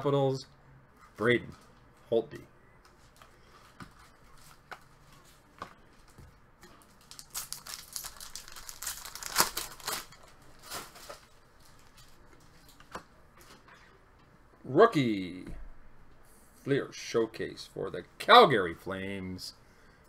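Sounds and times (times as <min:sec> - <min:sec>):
foil wrapper crinkling: 0:07.0 - 0:12.1.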